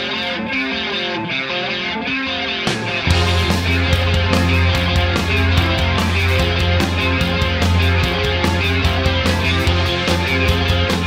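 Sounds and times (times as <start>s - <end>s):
electric guitar riff: 0.0s - 11.0s
drums playing: 2.7s - 11.0s.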